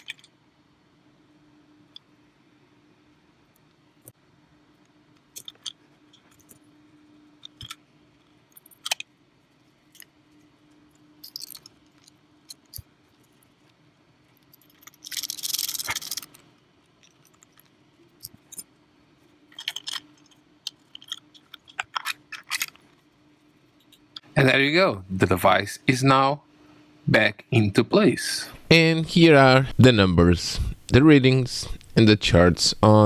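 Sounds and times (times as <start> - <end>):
small parts clicking and tapping: 0.0 - 0.4, 4.8 - 6.7, 7.3 - 9.2, 9.8 - 18.8, 19.4 - 23.1.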